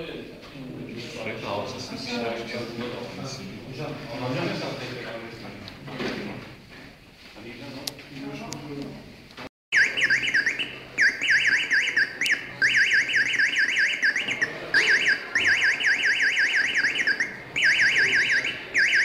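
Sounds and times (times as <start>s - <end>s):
warbling alarm beep: 9.7s - 19.0s.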